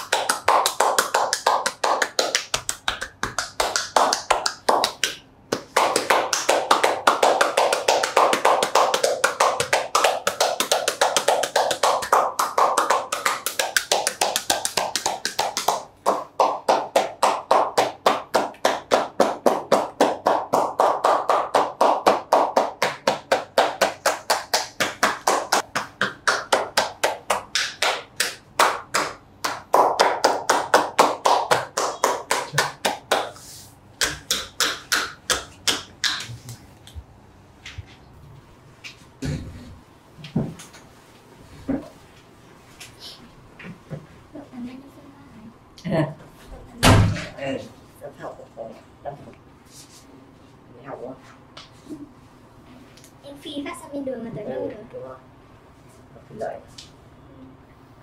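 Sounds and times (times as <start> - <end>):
hands slapping body: 34.0 - 36.6.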